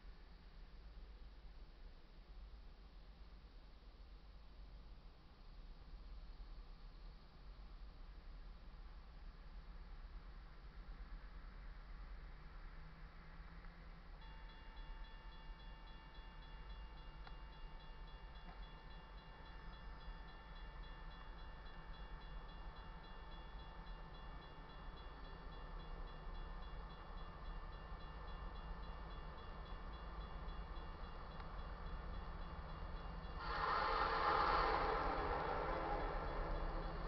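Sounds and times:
freight train rumble: 14.0s - 37.0s
steady ringing: 14.2s - 37.0s
locomotive horn: 33.4s - 37.0s.

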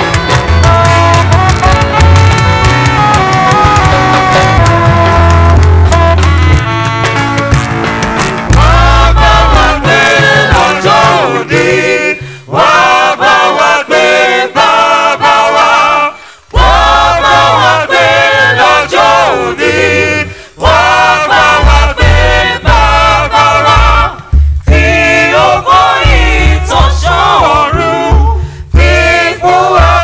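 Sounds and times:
band with bass line: 0.0s - 30.0s
choir singing a hymn: 8.6s - 30.0s.

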